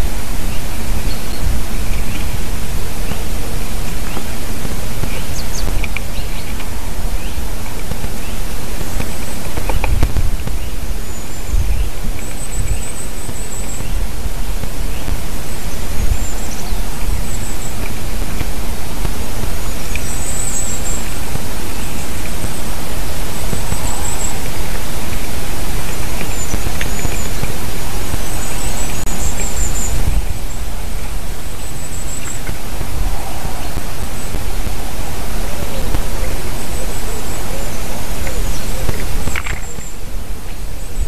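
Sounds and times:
small bird calling: 0:00.0 - 0:41.0
wind on microphone: 0:00.0 - 0:41.0
low rumble: 0:21.3 - 0:38.8.

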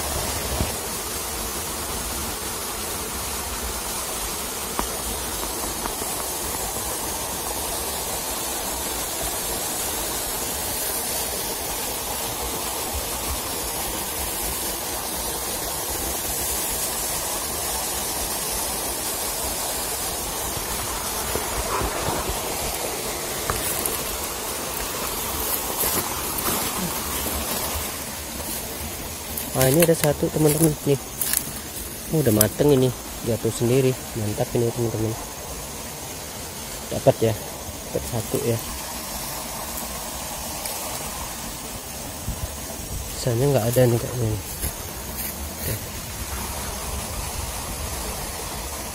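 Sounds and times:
stream water rushing: 0:00.0 - 0:48.9
undergrowth rustling and snapping: 0:20.6 - 0:32.9, 0:40.5 - 0:41.3, 0:44.4 - 0:46.0.

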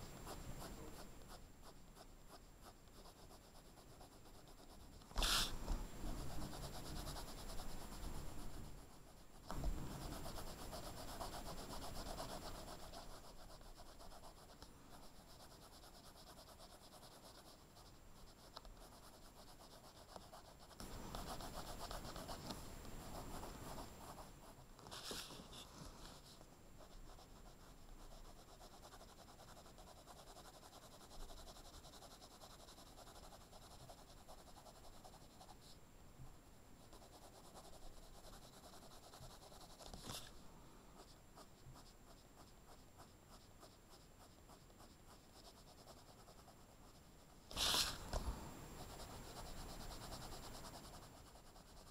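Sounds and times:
pencil scratching on paper: 0:00.0 - 0:35.8, 0:36.8 - 0:40.3, 0:41.0 - 0:48.2, 0:48.8 - 0:51.9.

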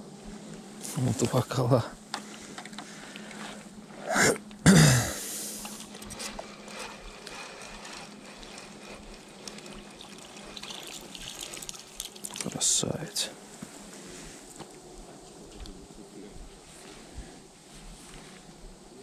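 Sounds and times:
water splashing: 0:09.9 - 0:12.6
water trickling and dripping: 0:10.0 - 0:12.7.

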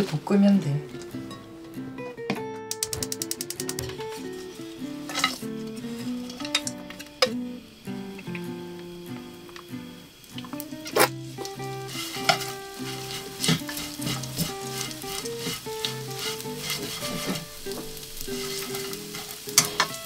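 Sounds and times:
soft plucked background music: 0:00.0 - 0:20.0
chopsticks clicking against pan: 0:02.7 - 0:03.9, 0:10.3 - 0:17.0, 0:17.7 - 0:20.0
fish sizzling in hot oil: 0:02.8 - 0:20.0.

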